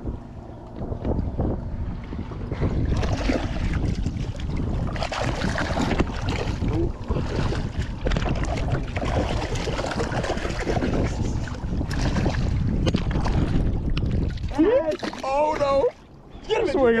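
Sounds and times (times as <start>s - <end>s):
wind buffeting microphone: 0.0s - 17.0s
water slapping boat hull: 0.6s - 17.0s
fish splashing at surface: 2.9s - 15.4s.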